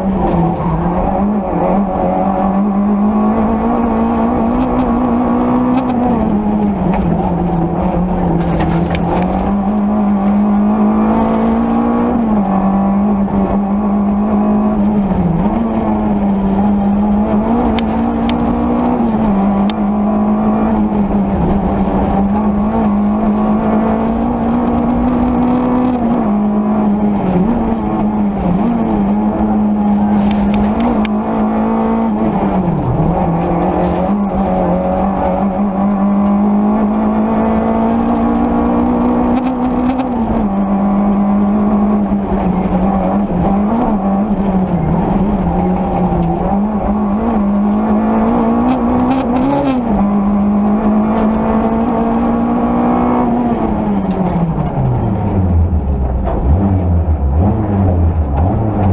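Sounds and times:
car engine revving high: 0.0s - 58.9s.

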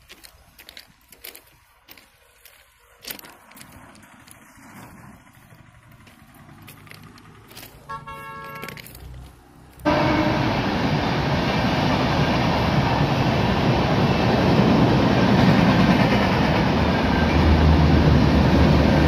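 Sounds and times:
horn blowing: 7.8s - 8.8s, 9.8s - 10.9s.

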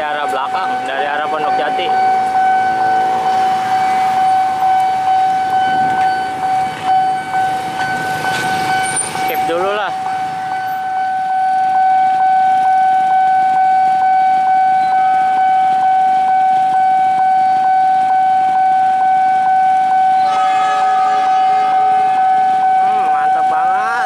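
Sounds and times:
level crossing alarm tone: 0.0s - 24.0s
train horn: 20.1s - 23.5s.

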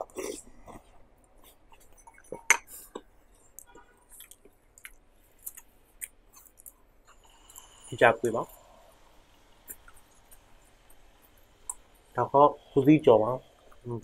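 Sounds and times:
chewing crispy fried dough: 0.0s - 7.8s.

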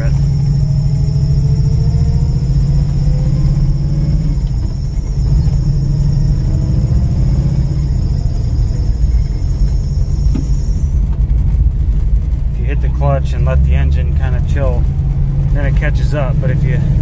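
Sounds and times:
drive belt squealing: 0.0s - 11.5s
engine and road rumble: 0.0s - 17.0s.

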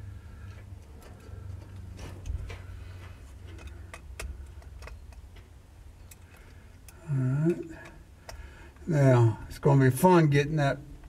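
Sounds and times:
steady low hum: 0.0s - 11.0s
light clicks and taps: 0.4s - 8.9s.

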